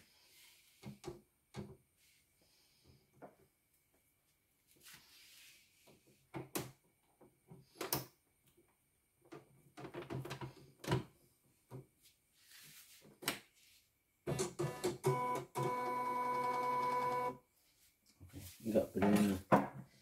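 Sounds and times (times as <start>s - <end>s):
soft rustling: 3.7s - 6.2s, 11.9s - 14.0s, 17.5s - 19.4s.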